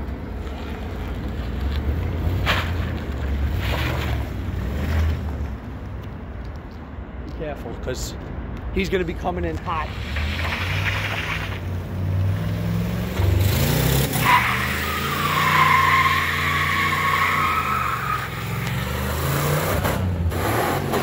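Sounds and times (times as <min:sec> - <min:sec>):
tires squealing: 0:00.4 - 0:05.5, 0:09.6 - 0:21.0.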